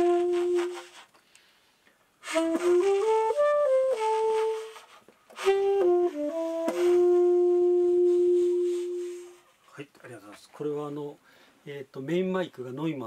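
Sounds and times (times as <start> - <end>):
saxophone slow melody: 0.0 - 1.1, 2.2 - 9.6
player breath: 1.1 - 2.0, 11.2 - 11.6.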